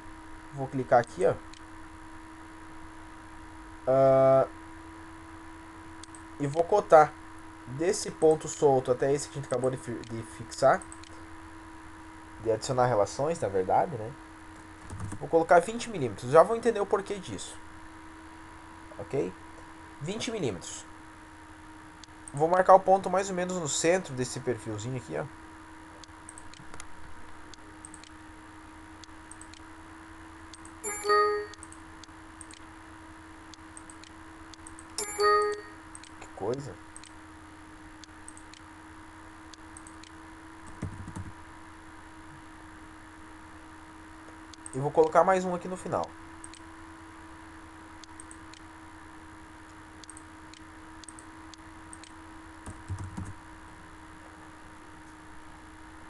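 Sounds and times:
steady low hum: 0.0 - 56.0
system alert chime: 30.8 - 31.6, 35.0 - 35.8
faint mouse clicks: 50.0 - 51.3.

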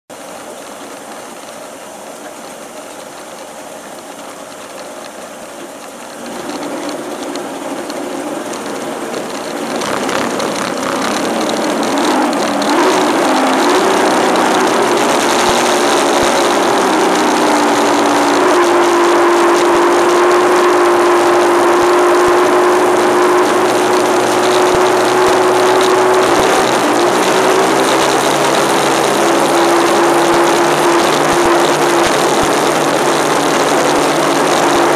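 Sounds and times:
powerboat engine accelerating: 0.1 - 34.9
rushing water: 0.1 - 34.9
wind noise: 6.2 - 34.9.

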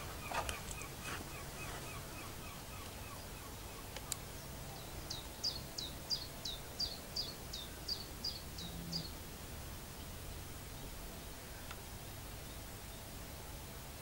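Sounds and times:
low bird chirping: 0.0 - 13.3.

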